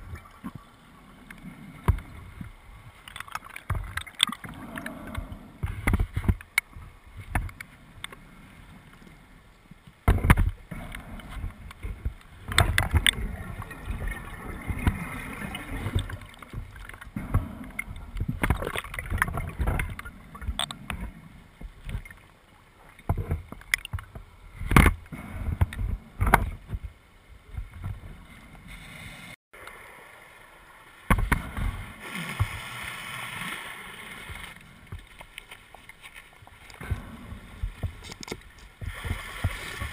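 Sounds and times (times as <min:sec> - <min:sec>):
diver bubbles gurgling: 0:10.7 - 0:21.2.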